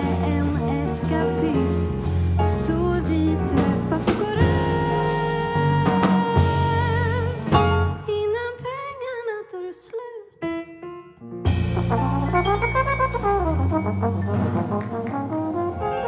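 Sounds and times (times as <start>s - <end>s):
jazz band playing: 0.0s - 8.1s, 11.4s - 16.0s
woman singing: 0.0s - 10.4s.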